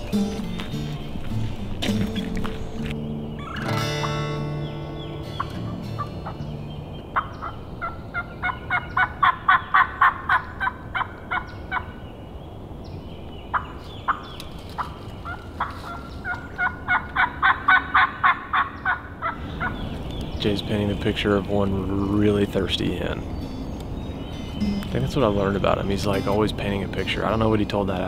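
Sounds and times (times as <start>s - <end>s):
turkey mouth call yelping: 14.8s - 19.8s.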